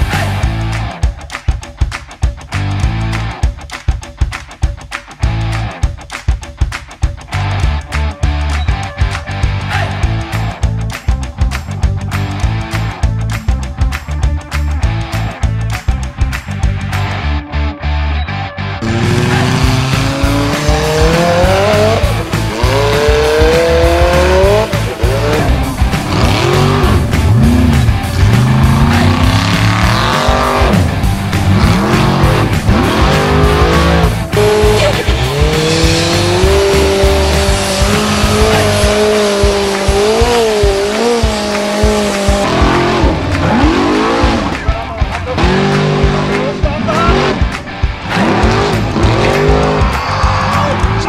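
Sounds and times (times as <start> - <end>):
music with heavy low beat: 0.0 - 51.0
buggy engine revving: 18.8 - 51.0.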